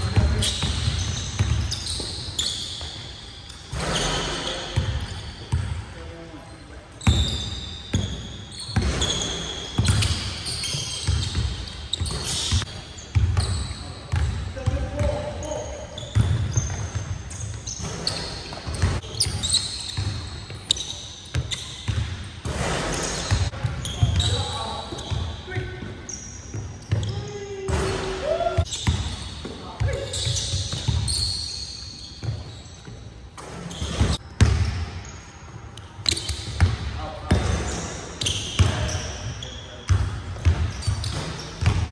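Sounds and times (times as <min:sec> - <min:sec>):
sneakers squeaking on floor: 0:00.0 - 0:41.9
high squeak: 0:00.4 - 0:05.5, 0:15.5 - 0:21.9, 0:30.0 - 0:34.2.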